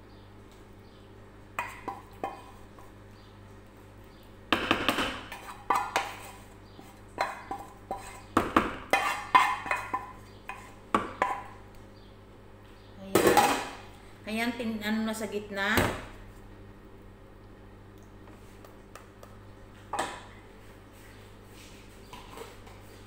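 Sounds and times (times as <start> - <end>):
wooden spatula scraping a pot: 5.2 - 11.5.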